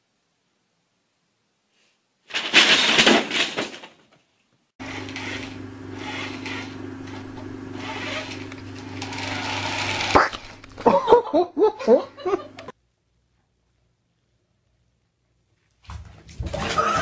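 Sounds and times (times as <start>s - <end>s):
toy car motor humming: 4.8s - 10.7s
toy car scratching on carpet: 7.8s - 8.4s.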